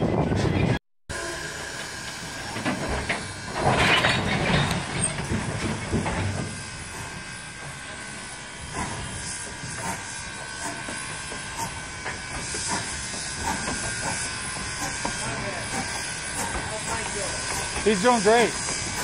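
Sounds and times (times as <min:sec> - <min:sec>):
train coaches rolling on track: 0:01.1 - 0:19.0
steam rushing hiss: 0:06.0 - 0:19.0.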